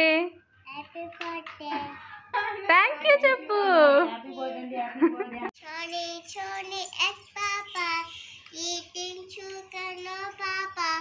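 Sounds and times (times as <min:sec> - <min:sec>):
girl singing: 0:05.6 - 0:11.0.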